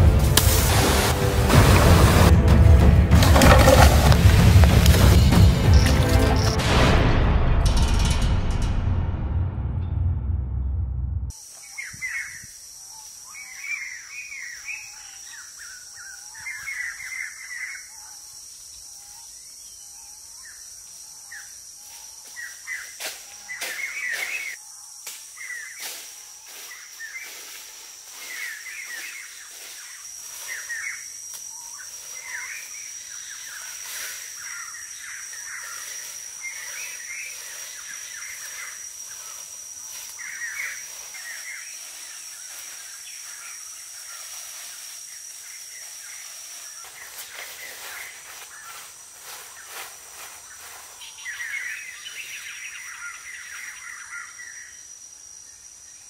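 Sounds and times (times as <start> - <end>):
birds chirping and calling: 11.6 - 24.6, 26.5 - 44.7, 45.4 - 54.8.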